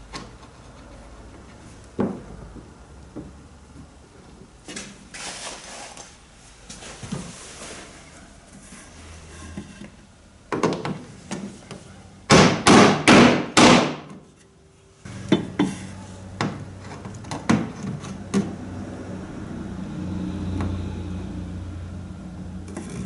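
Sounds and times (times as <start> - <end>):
hammer striking rivet: 12.3 - 14.1.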